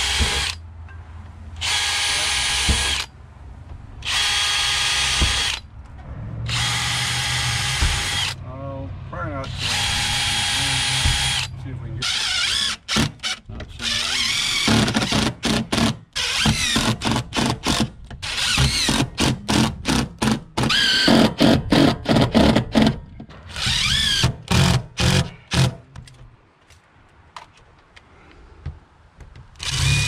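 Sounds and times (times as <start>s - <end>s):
cordless drill driving screws: 0.0s - 0.6s, 1.6s - 3.1s, 4.0s - 5.6s, 6.5s - 8.4s, 9.5s - 25.7s, 29.6s - 30.0s.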